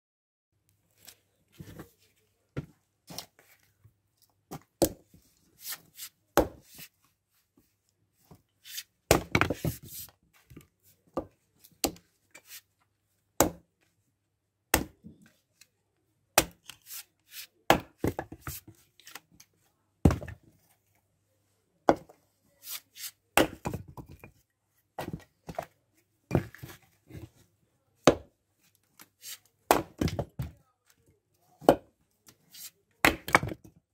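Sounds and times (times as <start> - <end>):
axe splitting firewood: 9.1 - 9.9, 14.7 - 15.0, 16.4 - 18.6, 22.7 - 24.2, 28.0 - 28.3, 29.4 - 30.5, 33.0 - 33.7.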